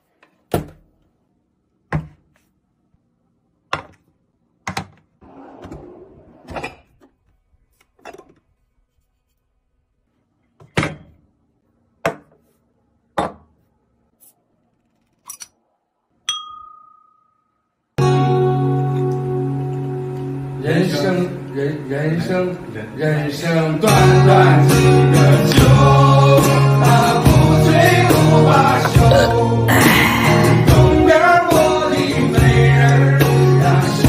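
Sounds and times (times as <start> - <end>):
glass ringing when flicked: 16.3 - 17.7.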